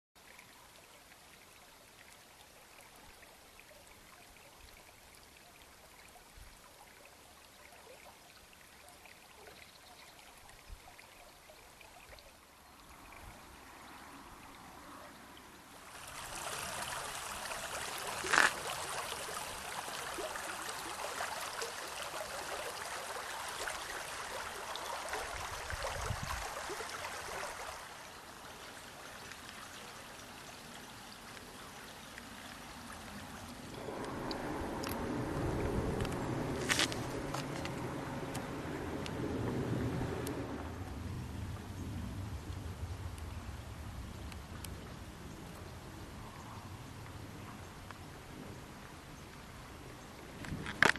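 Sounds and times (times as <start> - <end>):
river babbling over gravel: 12.4 - 50.9.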